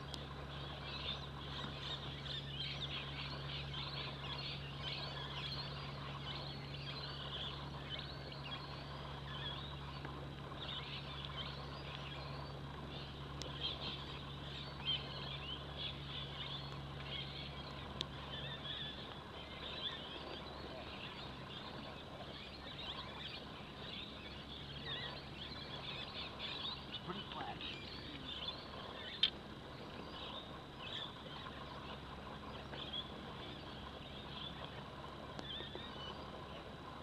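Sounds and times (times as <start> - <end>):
birds chirping and calling: 0.0 - 36.7
steady low hum: 0.0 - 37.0.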